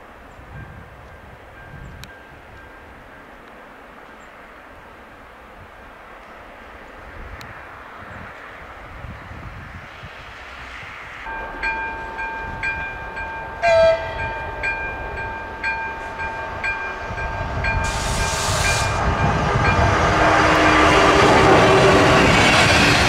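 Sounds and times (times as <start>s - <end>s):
electric train rumble: 0.0s - 23.0s
level-crossing warning bell: 0.4s - 3.4s, 11.3s - 20.9s
train horn blast: 11.3s - 22.2s
brief hiss: 17.8s - 19.0s.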